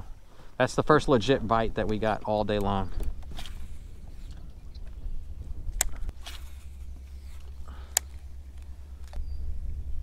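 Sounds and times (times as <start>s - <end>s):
sharp clicks: 1.8s - 3.6s, 5.7s - 6.4s, 7.4s - 9.2s
wind rumble on microphone: 2.4s - 10.0s.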